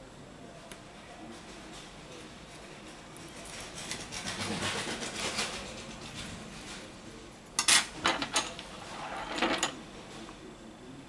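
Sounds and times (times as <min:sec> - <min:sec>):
light rubbing sounds: 0:08.5 - 0:10.3.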